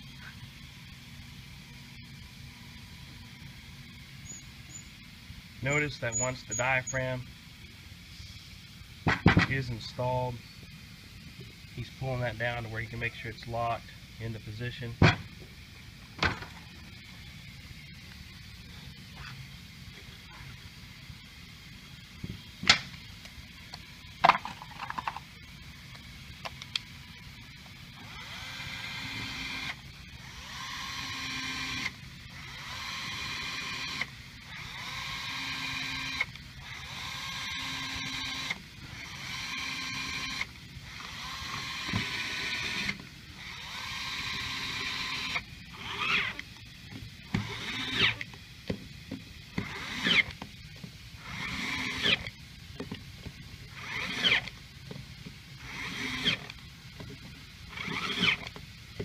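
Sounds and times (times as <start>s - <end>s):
pneumatic screwdriver whine: 4.2s - 5.0s, 5.7s - 7.1s, 27.9s - 46.5s, 47.2s - 48.4s, 49.4s - 50.4s, 51.2s - 52.4s, 53.7s - 54.6s, 55.6s - 56.6s, 57.7s - 58.6s.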